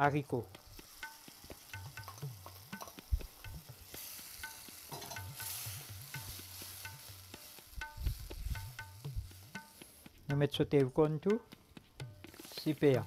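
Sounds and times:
beans sizzling in oil: 0.0s - 10.4s, 11.5s - 13.0s
utensil scraping and tapping pan: 0.8s - 10.2s.

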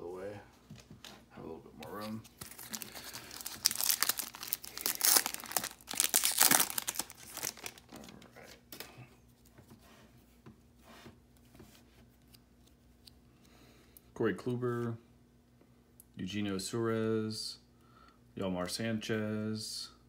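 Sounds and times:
cards rustling and clicking: 1.8s - 8.9s
foil wrapper tearing and crinkling: 2.3s - 8.1s.

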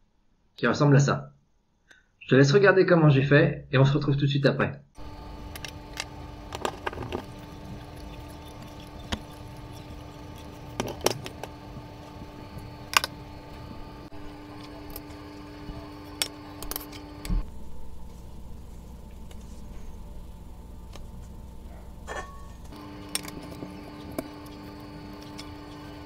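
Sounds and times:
crank can opener cutting can: 5.0s - 17.4s, 22.7s - 26.0s
steady low hum: 5.0s - 26.0s.

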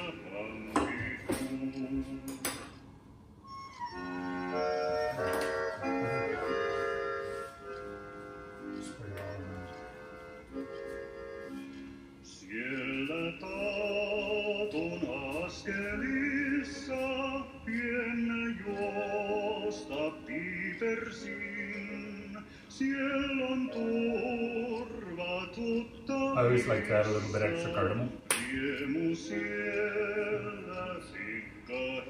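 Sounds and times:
man singing with vibrato: 0.0s - 2.8s, 4.5s - 7.4s, 12.2s - 32.0s
folk song with accordion chords: 3.4s - 32.0s.

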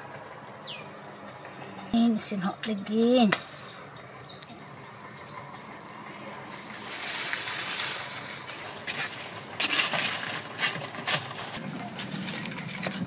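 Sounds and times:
bird chirps: 0.6s - 2.0s, 2.8s - 7.0s, 12.0s - 12.4s
dry leaves rustling and crackling: 5.9s - 13.0s.

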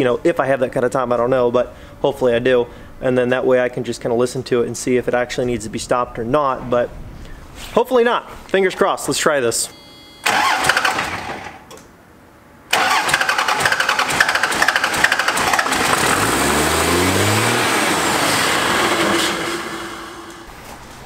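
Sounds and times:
diesel engine starter cranking: 10.2s - 11.8s, 12.7s - 20.4s
diesel engine revving high: 12.7s - 20.5s.

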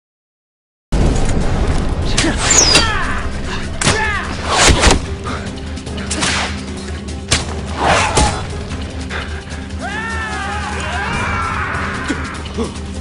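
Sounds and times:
low music drone: 1.0s - 13.0s
swishes and whip-like cracks: 3.8s - 5.1s, 6.1s - 6.7s.

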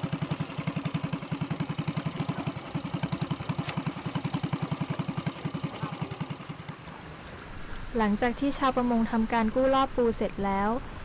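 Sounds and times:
boat engine idling: 0.0s - 7.2s.

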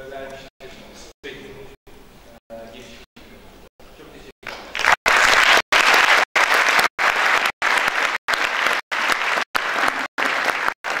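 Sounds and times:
audience applauding: 4.4s - 11.0s.

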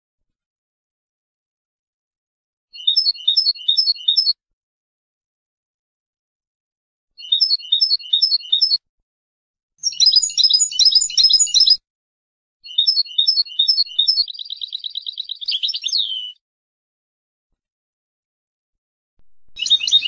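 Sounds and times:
goldfinch singing: 2.8s - 4.4s, 7.2s - 8.8s, 9.8s - 11.8s, 12.7s - 16.4s, 19.5s - 20.0s.

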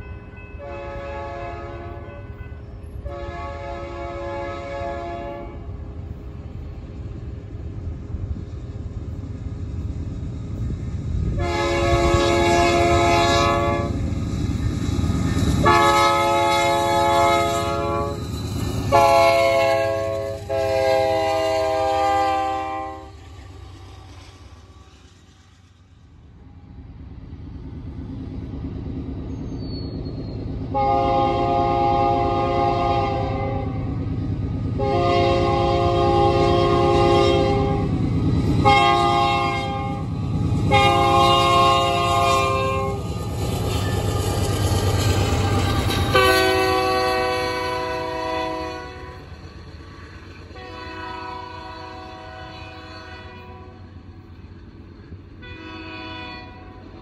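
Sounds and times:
locomotive rumble: 0.0s - 57.0s
locomotive horn blasts: 0.6s - 5.7s, 11.4s - 14.0s, 15.6s - 18.2s, 18.9s - 23.2s, 30.7s - 33.9s, 34.8s - 37.9s, 38.6s - 40.1s, 40.7s - 43.0s, 46.1s - 49.3s, 50.6s - 53.8s, 55.4s - 56.8s.

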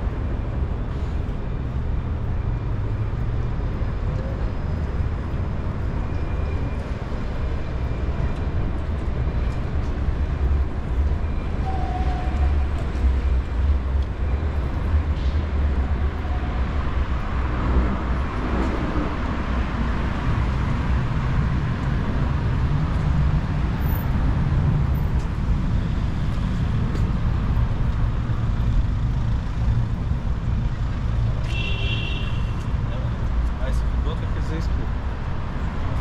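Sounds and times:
street traffic rumble: 0.0s - 36.0s.

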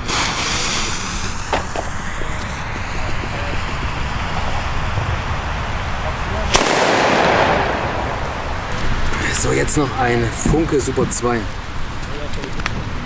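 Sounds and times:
firecracker fuse hissing: 0.0s - 13.0s
low rumble: 1.0s - 10.0s.

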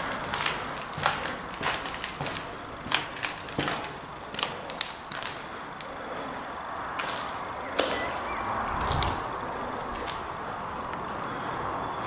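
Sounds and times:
sharp cracks: 0.0s - 6.0s, 7.0s - 11.0s
footsteps crunching on debris: 0.0s - 6.3s, 8.7s - 11.0s.

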